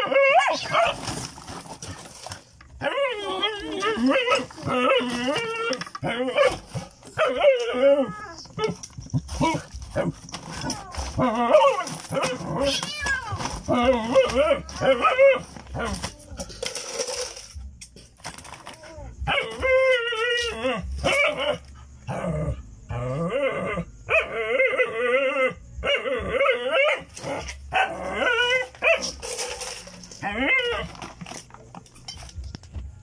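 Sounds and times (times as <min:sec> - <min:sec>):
dog whining and yelping: 0:02.8 - 0:16.1.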